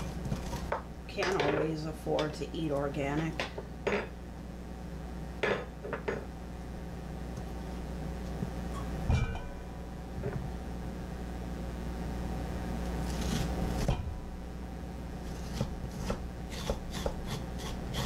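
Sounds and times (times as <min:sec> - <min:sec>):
pumpkin rasping scrape: 0:13.0 - 0:13.9, 0:15.2 - 0:18.0.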